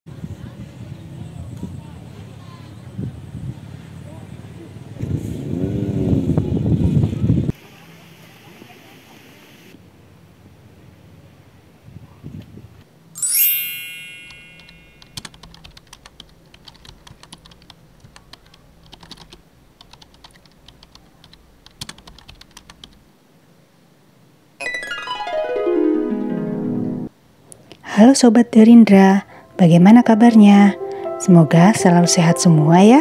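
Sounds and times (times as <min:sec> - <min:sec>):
sweep of falling tones: 0:13.2 - 0:15.0, 0:24.6 - 0:27.1
bright ringing chime: 0:13.2 - 0:15.2, 0:24.6 - 0:27.1
keyboard typing clicks: 0:14.6 - 0:23.0.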